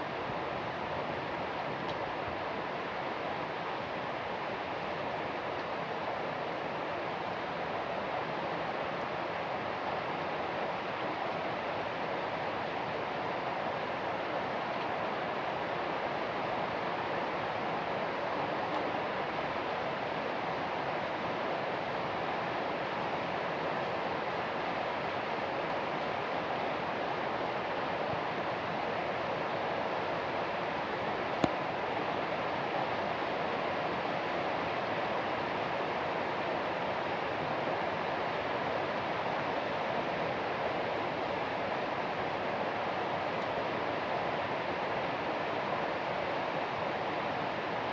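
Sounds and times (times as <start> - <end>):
steady rain falling: 0.0 - 47.9.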